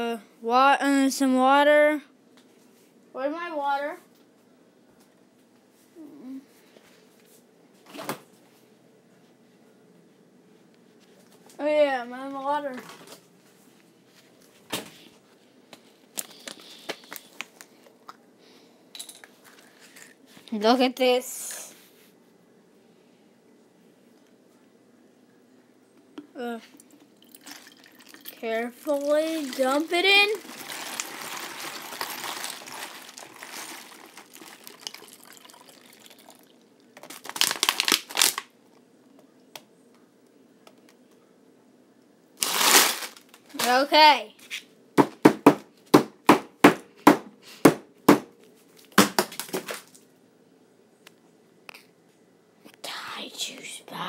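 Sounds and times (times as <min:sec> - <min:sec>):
thin plastic crinkling and tapping: 0:15.7 - 0:18.2, 0:26.1 - 0:40.0, 0:48.8 - 0:50.1
plastic bottles being handled: 0:26.8 - 0:38.4.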